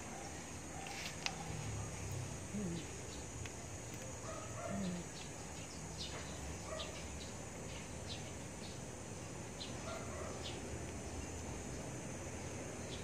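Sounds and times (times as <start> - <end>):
steady background hiss: 0.0 - 13.0
faint lower animal calls: 2.5 - 3.2, 4.4 - 5.3.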